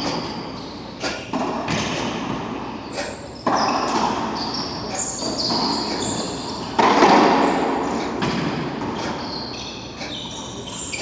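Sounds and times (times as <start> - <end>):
sneaker squeaks on hardwood: 0.0 - 2.1, 2.8 - 7.6, 8.2 - 11.0
racquetball strikes: 1.2 - 2.7, 3.4 - 9.4.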